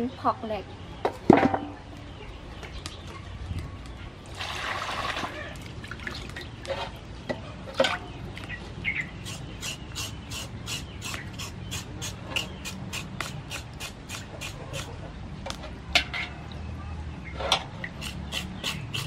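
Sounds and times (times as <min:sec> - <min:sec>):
knife scraping pork skin: 0:09.2 - 0:15.0, 0:17.9 - 0:19.0.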